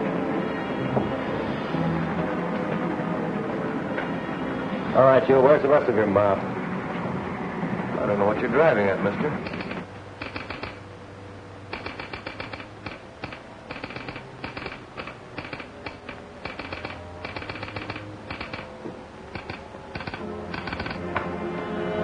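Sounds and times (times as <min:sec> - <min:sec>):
telegraph sounder clicking: 0:09.4 - 0:10.8, 0:11.7 - 0:21.0.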